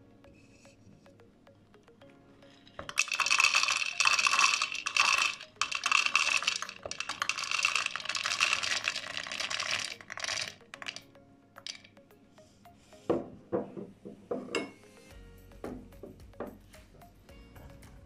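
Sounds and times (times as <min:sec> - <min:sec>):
chickpeas clattering into plastic bowl: 0:02.8 - 0:11.0, 0:11.6 - 0:11.9.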